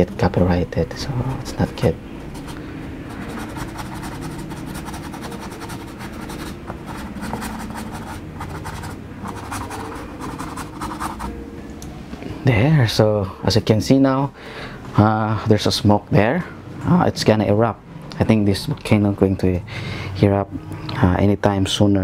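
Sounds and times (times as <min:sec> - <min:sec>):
low background hum: 0:00.0 - 0:22.0
paintbrush scrubbing on canvas: 0:02.4 - 0:11.3.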